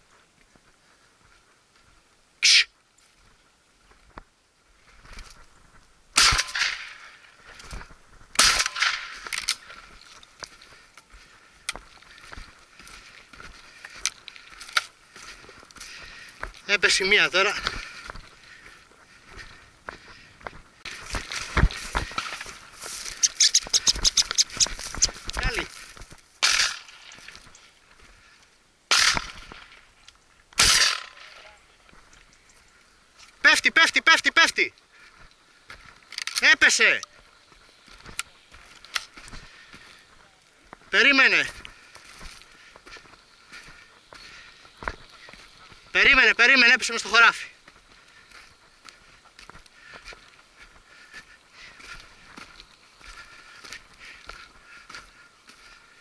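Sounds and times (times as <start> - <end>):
shotgun shots with echo: 6.2 - 7.0, 8.4 - 9.2, 26.4 - 26.8, 28.9 - 29.5, 30.6 - 31.4.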